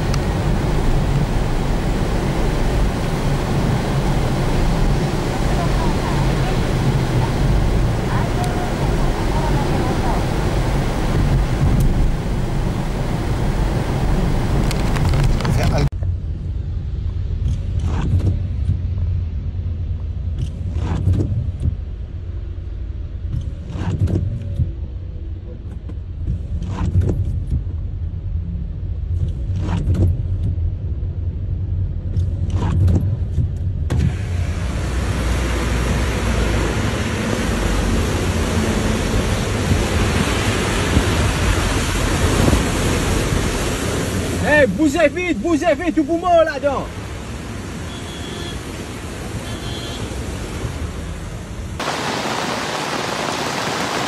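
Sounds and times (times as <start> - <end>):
floodwater rushing: 0.0 - 15.9, 34.1 - 54.0
windscreen wiper swishing: 0.0 - 15.9, 32.4 - 54.0
heavy rain: 0.0 - 16.0, 33.9 - 54.0
road rumble inside car: 0.0 - 52.4.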